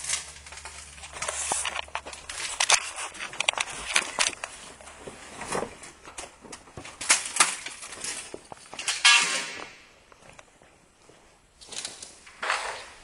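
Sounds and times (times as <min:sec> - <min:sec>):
footsteps on rubble: 0:00.0 - 0:09.0.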